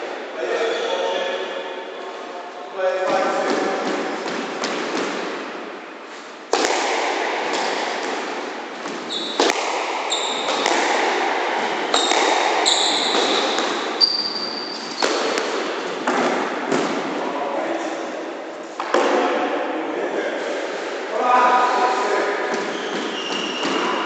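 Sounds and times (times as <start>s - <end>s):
squash ball hits: 3.1s - 5.6s, 6.5s - 17.2s, 18.8s - 19.6s, 22.5s - 24.0s
sneakers squeaking on wooden floor: 8.8s - 10.8s, 11.6s - 15.4s, 22.4s - 24.0s.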